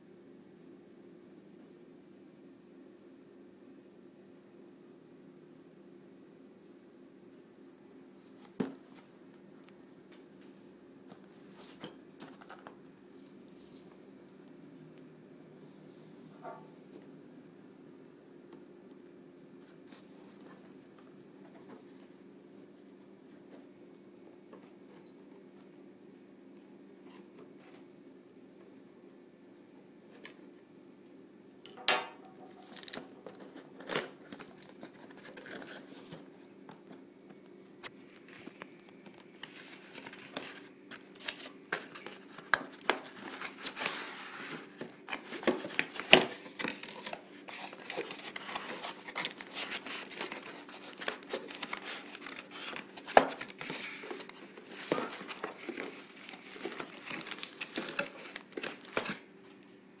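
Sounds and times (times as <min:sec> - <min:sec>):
faint steady hum: 0:00.0 - 1:00.0
cardboard and plastic rustling: 0:32.5 - 0:37.0, 0:37.9 - 0:59.3.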